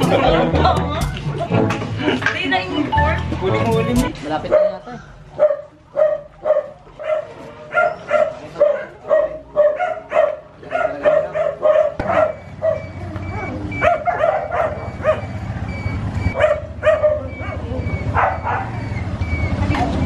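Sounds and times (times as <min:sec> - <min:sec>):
dog barking: 0:04.5 - 0:04.8, 0:05.4 - 0:15.4, 0:16.4 - 0:19.0
motorcycle engine running: 0:11.9 - 0:20.0.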